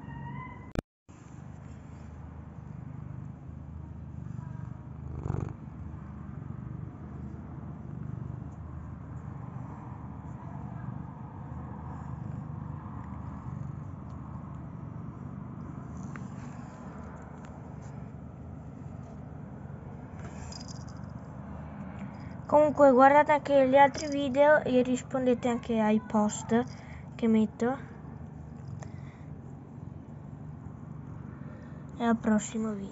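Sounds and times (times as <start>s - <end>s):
cat purring: 4.1s - 21.1s.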